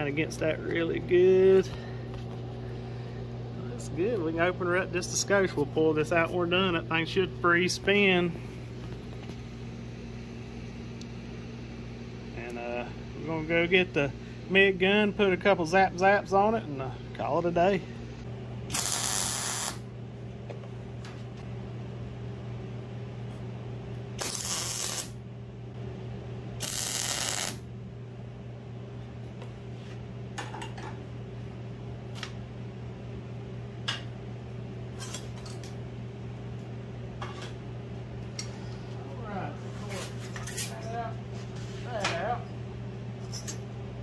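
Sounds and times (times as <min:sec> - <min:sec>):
steady low hum: 0:00.0 - 0:44.0
welding arc hissing: 0:18.7 - 0:19.9, 0:24.2 - 0:25.2, 0:26.6 - 0:27.6.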